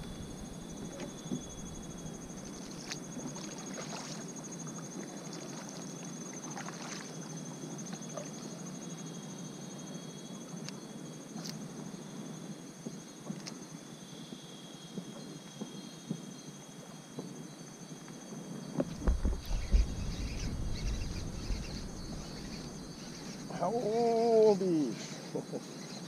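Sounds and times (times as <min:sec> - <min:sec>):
kayak paddle splashing in water: 0:00.0 - 0:04.4, 0:05.4 - 0:07.2
kayak pushing through reeds: 0:00.0 - 0:04.4, 0:18.8 - 0:23.7
paddle knocks: 0:18.8 - 0:23.4.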